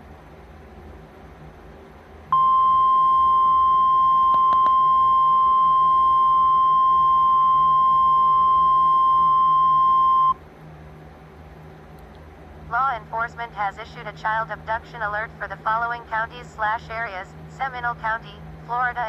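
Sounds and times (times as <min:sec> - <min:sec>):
long high alert beep: 0:02.4 - 0:10.4.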